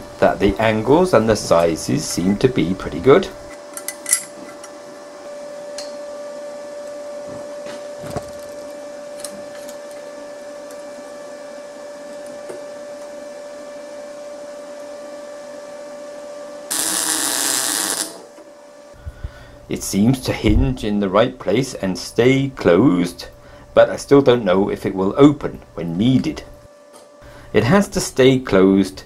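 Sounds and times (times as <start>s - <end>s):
machine hum: 0.0s - 20.0s
welder arc hissing: 16.7s - 18.4s.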